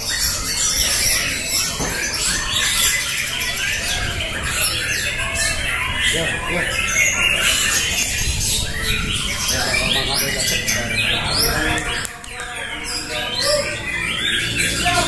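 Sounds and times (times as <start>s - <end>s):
birds singing whistled notes: 0.0s - 15.0s.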